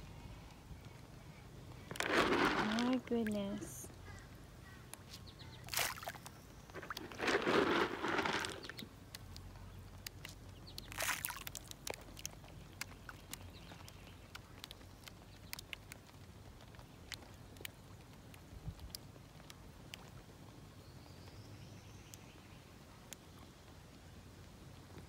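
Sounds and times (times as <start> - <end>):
water splashing and pattering: 0.0 - 25.0
fish popping at water surface: 5.6 - 7.8, 10.0 - 16.2.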